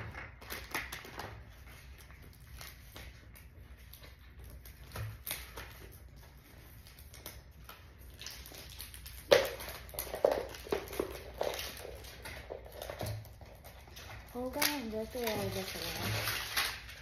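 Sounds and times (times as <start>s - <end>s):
plastic bag rustling: 0.0s - 17.0s.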